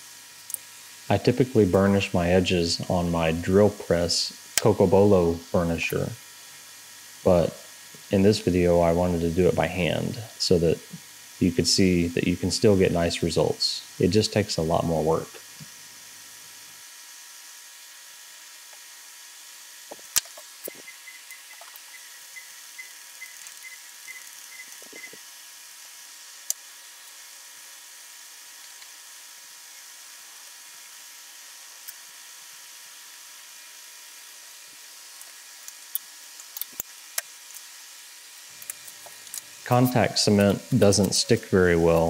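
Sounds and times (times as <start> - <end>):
steady hiss: 0.0 - 42.0
leather rubbing with squeaks: 24.1 - 25.2.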